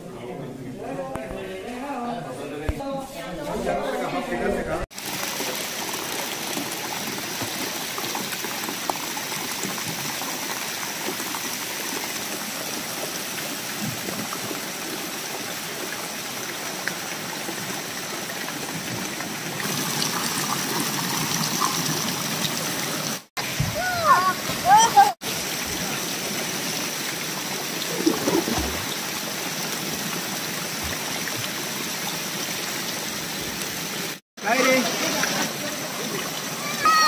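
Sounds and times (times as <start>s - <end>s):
water pouring: 4.9s - 32.6s
fountain jets spattering into pool: 4.9s - 37.0s.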